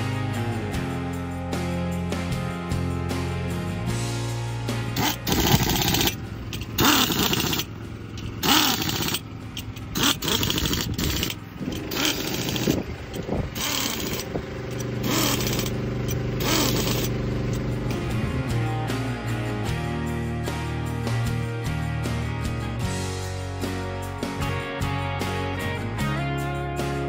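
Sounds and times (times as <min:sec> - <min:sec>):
guitar music: 0:00.0 - 0:06.8, 0:14.2 - 0:27.0
pneumatic air tool bursts: 0:05.0 - 0:17.7.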